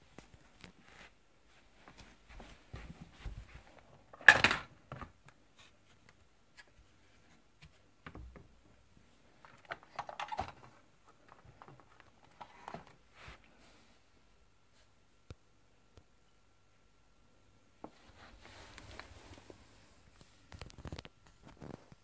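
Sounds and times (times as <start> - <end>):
plastic casing clicking and scraping: 9.4 - 12.9.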